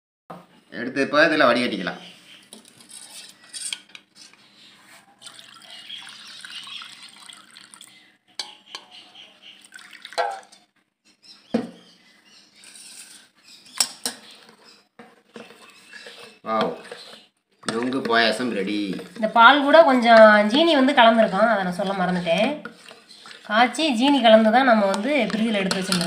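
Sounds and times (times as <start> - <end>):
milk pouring and splashing: 5.2 - 8.1, 9.5 - 10.7, 15.3 - 26.0
steel utensils clinking: 24.9 - 26.0.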